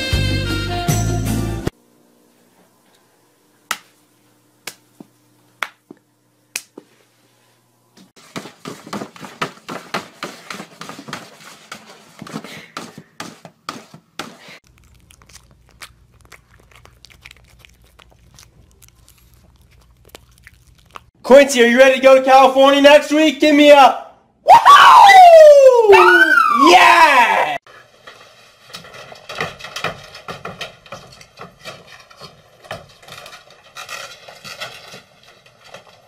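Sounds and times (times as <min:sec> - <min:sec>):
dog mouth smacking: 0:14.7 - 0:21.2.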